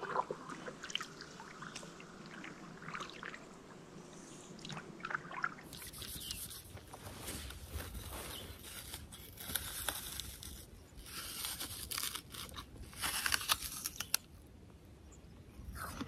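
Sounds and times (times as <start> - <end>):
water dripping: 0.0 - 3.7.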